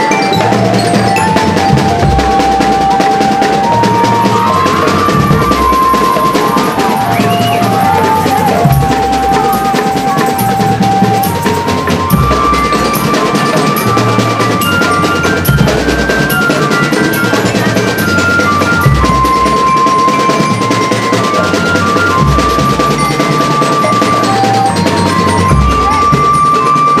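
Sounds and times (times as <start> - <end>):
drum band playing: 0.0 - 27.0
high melody of held notes: 0.0 - 27.0.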